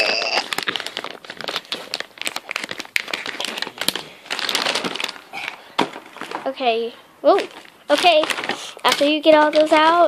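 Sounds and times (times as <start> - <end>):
scissors cutting plastic wrap: 0.0 - 5.6, 7.9 - 10.0
plastic wrap crinkling: 0.0 - 10.0.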